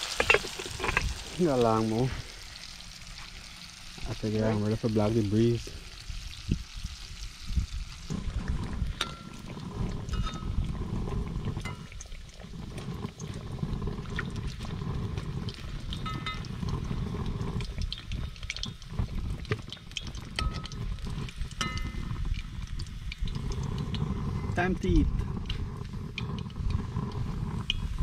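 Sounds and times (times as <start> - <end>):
fish frying in oil: 0.0 - 28.0.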